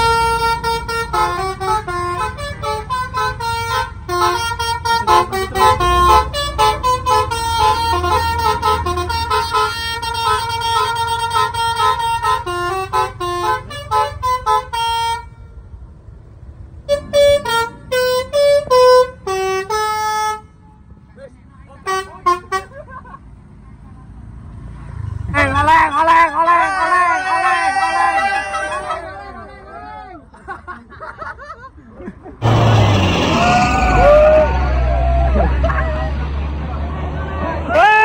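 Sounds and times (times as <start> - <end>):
musical air horns playing a tune: 0.0 - 15.3, 16.8 - 20.5
low rumble: 32.4 - 36.7.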